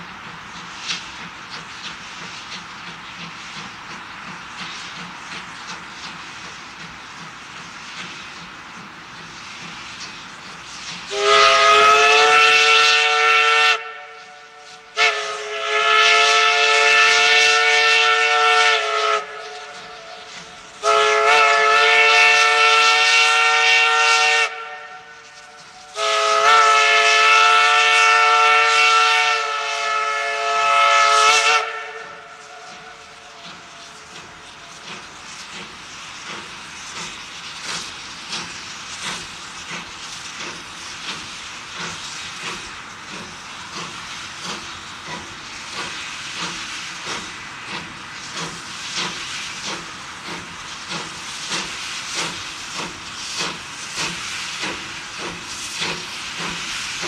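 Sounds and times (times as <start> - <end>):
steam hiss with faint beats: 0.0 - 57.0
steam locomotive whistle blasts: 11.1 - 34.0.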